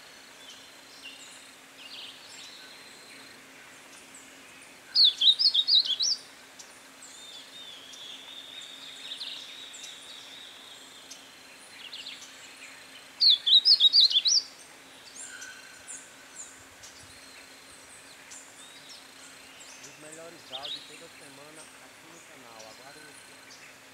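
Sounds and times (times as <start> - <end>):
bird warbling song phrases: 4.9 - 11.2, 13.2 - 23.8.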